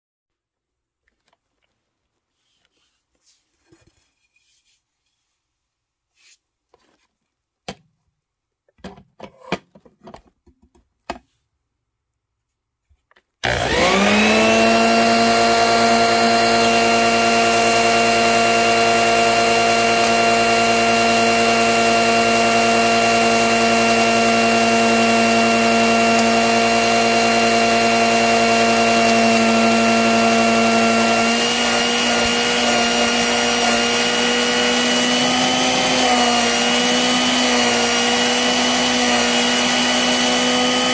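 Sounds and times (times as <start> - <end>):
handling rustles and clicks: 1.0 - 2.8.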